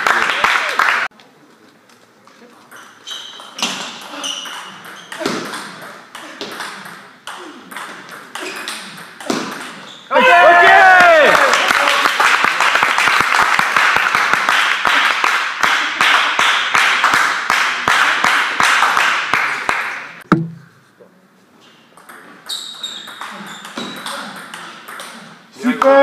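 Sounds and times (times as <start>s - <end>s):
crowd applause: 0.0s - 1.1s, 10.8s - 19.8s.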